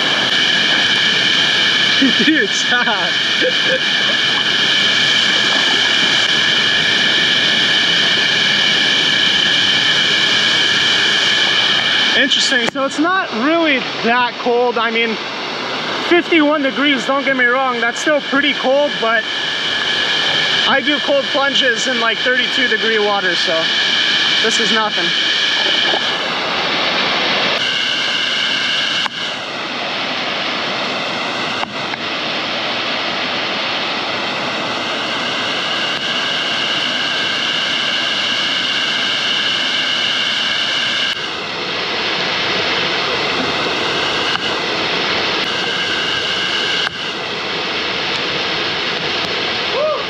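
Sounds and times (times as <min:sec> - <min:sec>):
waterfall roaring: 0:00.0 - 0:23.6, 0:24.4 - 0:27.9, 0:29.4 - 0:36.1, 0:41.2 - 0:50.0.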